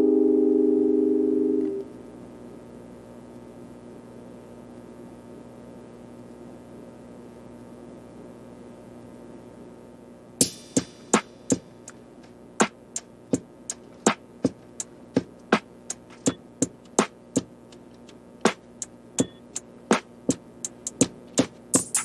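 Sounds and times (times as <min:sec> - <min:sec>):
sharp percussive hits: 0:10.4 - 0:12.0, 0:20.7 - 0:22.0.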